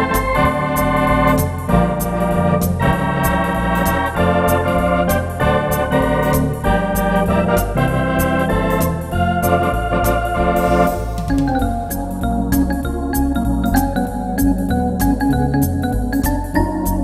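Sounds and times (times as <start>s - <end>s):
electronic organ chords: 0.0s - 17.0s
moving bass line: 0.0s - 17.0s
ticking cymbal beat: 8.8s - 15.3s.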